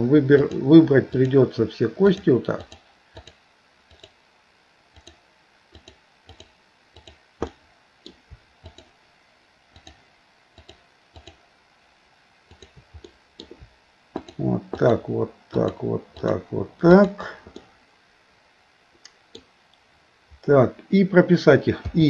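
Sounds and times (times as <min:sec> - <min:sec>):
computer mouse clicking: 0:00.4 - 0:01.4, 0:02.1 - 0:04.2, 0:04.9 - 0:09.0, 0:09.7 - 0:10.0, 0:10.6 - 0:11.4, 0:12.5 - 0:14.9, 0:15.5 - 0:16.4, 0:17.0 - 0:17.7.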